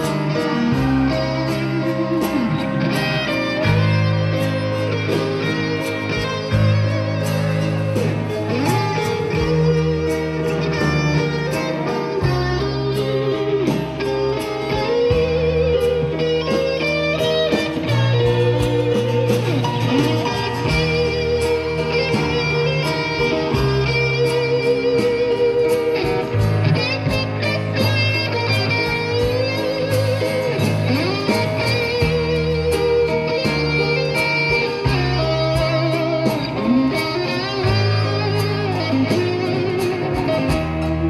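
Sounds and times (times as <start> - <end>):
acoustic guitars picking and strumming: 0.0 - 41.0
bass chords: 0.0 - 41.0.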